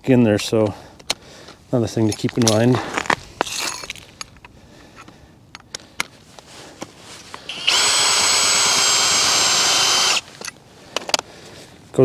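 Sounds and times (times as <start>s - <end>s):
cordless drill whining: 7.5s - 10.4s.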